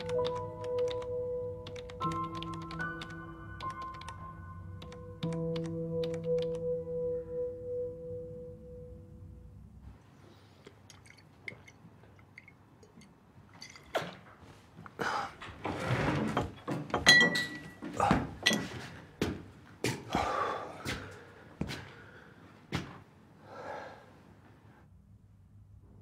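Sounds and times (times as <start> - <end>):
glass clink ringing: 10.9 - 14.0, 17.0 - 17.8, 18.4 - 18.7.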